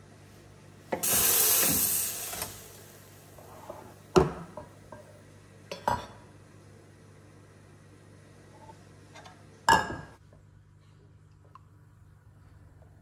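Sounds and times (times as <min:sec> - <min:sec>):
espresso machine hissing: 0:01.0 - 0:03.9.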